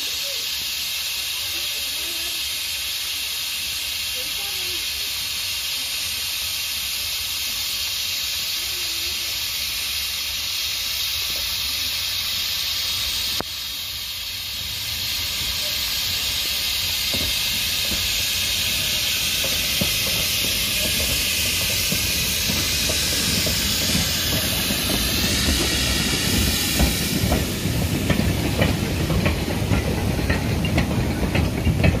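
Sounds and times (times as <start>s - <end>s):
steam locomotive hissing: 0.0s - 32.0s
clanking wheels and couplings: 15.4s - 32.0s.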